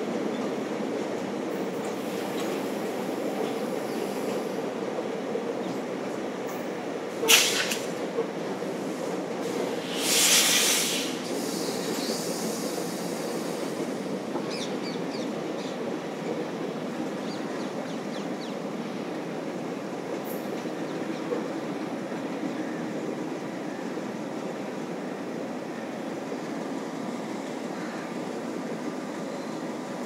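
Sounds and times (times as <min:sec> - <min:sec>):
train wheels rumbling on track: 0:00.0 - 0:30.0
loud rushing hiss: 0:07.2 - 0:08.0, 0:08.8 - 0:14.1.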